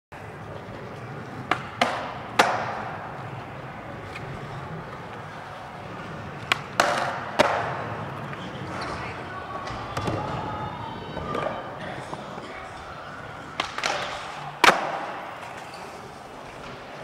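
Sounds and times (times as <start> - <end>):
skateboard wheels rolling: 0.2 - 17.0
skateboard clacks and landing slaps: 1.4 - 3.0, 6.4 - 7.8, 13.5 - 15.7.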